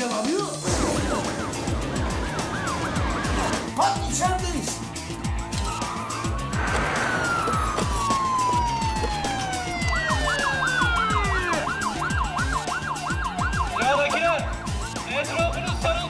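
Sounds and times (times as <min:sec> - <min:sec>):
police siren wailing and yelping: 0:00.7 - 0:03.7, 0:05.6 - 0:15.9
music with low beat: 0:06.3 - 0:15.0.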